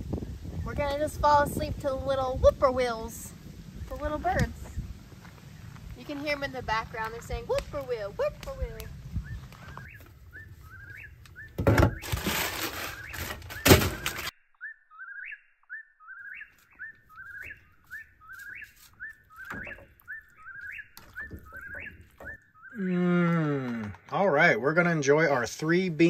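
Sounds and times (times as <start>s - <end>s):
sharp thumps: 11.5s - 14.3s.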